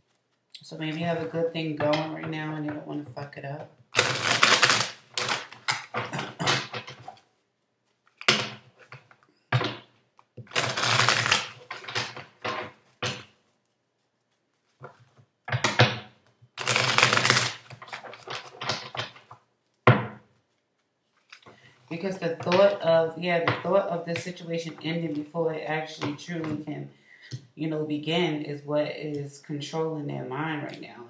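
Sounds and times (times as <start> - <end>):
cards being shuffled: 3.9 - 19.4, 20.4 - 22.8.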